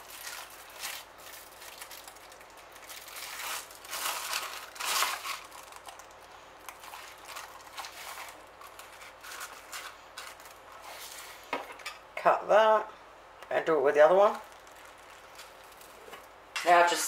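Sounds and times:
plastic sheet crinkling: 0.0s - 11.5s, 14.3s - 16.3s.

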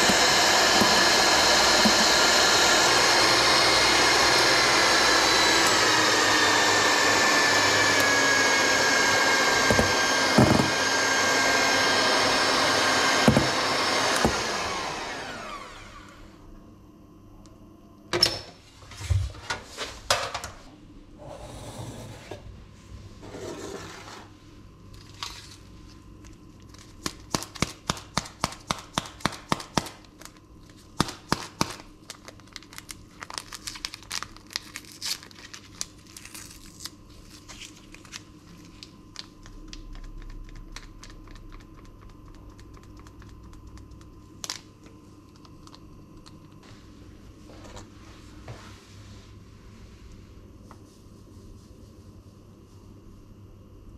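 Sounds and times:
paper sachet crinkling and tearing: 31.7s - 44.0s.

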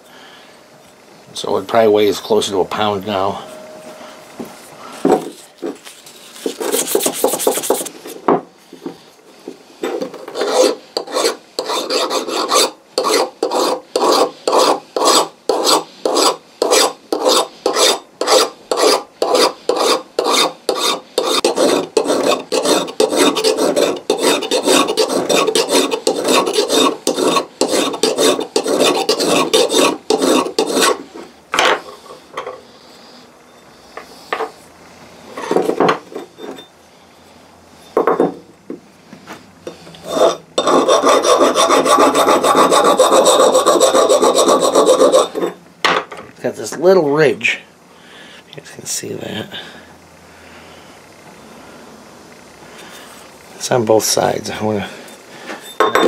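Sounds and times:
abrasive paper rubbing: 6.1s - 8.0s
hand file strokes on steel: 10.3s - 31.2s, 39.7s - 45.6s.

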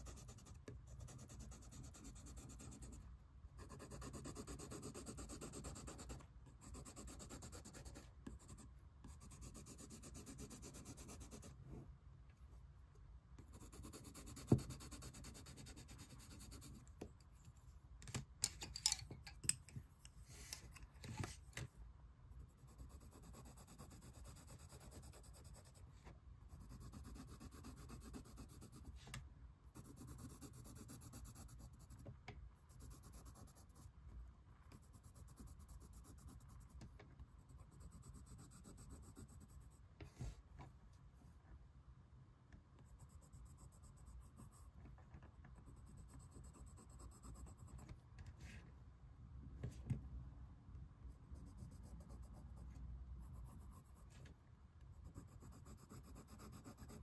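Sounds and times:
colored pencil scratching paper: 0.0s - 11.8s, 13.4s - 17.0s, 22.3s - 32.1s, 32.7s - 34.0s, 34.7s - 40.4s, 42.8s - 48.7s, 51.1s - 57.0s.

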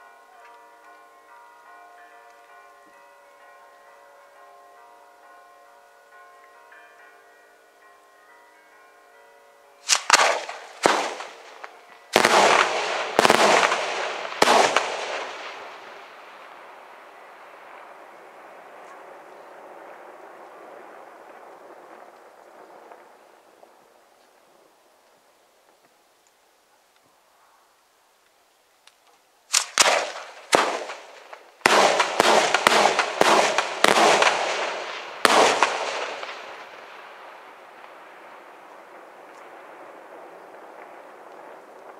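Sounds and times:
fireworks bangs echoing: 9.8s - 17.9s, 29.5s - 41.9s.

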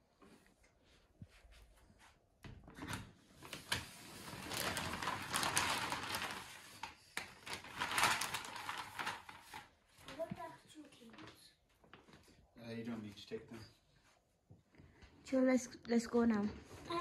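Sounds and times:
shopping bag rustling and crinkling: 3.3s - 10.4s.

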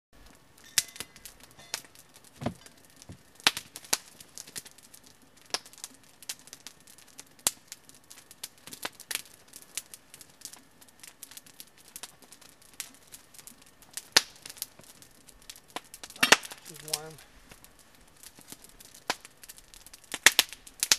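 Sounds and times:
campfire crackling and popping: 0.2s - 20.9s
dull thump: 2.4s - 3.2s.

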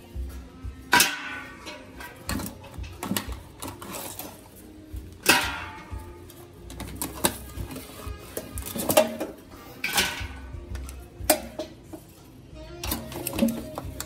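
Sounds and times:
metal tongs clanging on sink: 7.0s - 10.5s.

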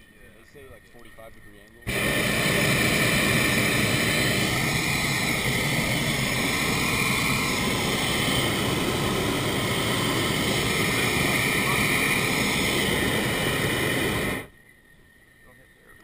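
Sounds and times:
propane burner blasting: 1.9s - 14.5s.

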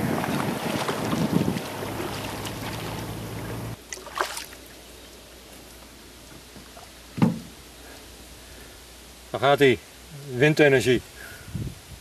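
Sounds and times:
wind on microphone: 0.0s - 3.8s, 11.3s - 12.0s
splash: 0.0s - 4.8s
water lapping: 0.0s - 4.8s.

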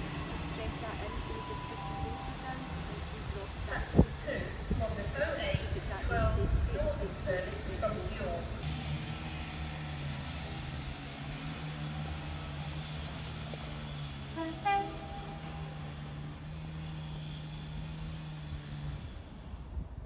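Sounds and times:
train humming: 0.0s - 20.0s
train horn toot: 13.9s - 16.3s.

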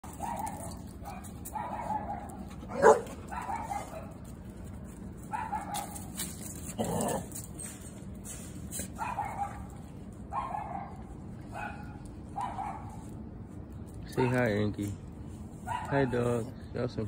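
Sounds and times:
dog barking: 0.1s - 4.1s, 5.3s - 6.0s, 9.0s - 13.1s, 15.6s - 16.2s.

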